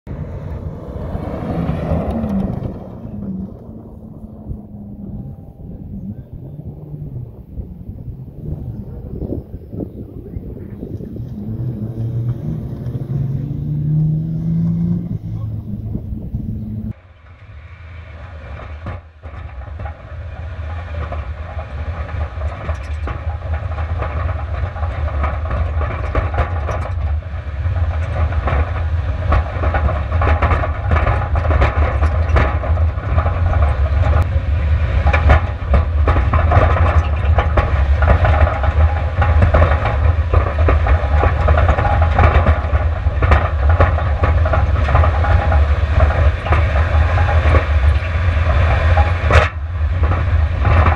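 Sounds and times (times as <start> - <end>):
car engine rumble: 0.0 - 50.9
stones and suspension rattling: 18.3 - 50.9.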